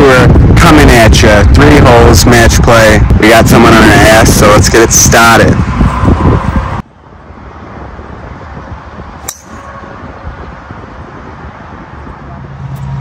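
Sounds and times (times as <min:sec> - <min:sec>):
wind noise: 0:00.0 - 0:13.0
golf driver striking ball: 0:09.2 - 0:09.7.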